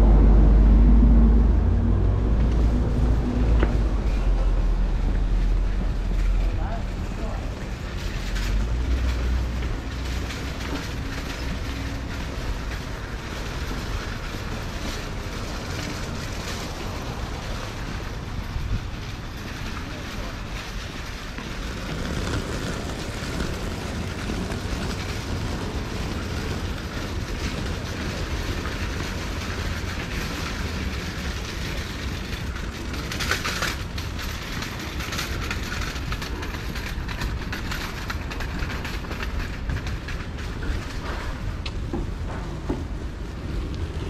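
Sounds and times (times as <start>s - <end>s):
low street rumble: 0.0s - 44.0s
small wheels rattling on asphalt: 1.1s - 44.0s.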